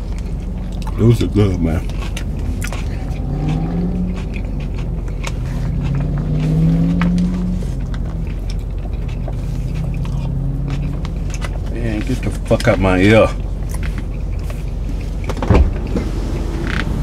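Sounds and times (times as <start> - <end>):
car engine rumble: 0.0 - 17.0
food containers rustling: 4.1 - 15.5.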